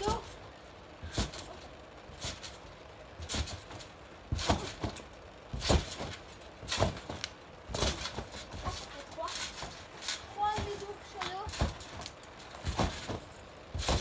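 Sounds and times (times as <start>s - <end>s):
thuds of trampoline landings: 1.0s - 14.0s.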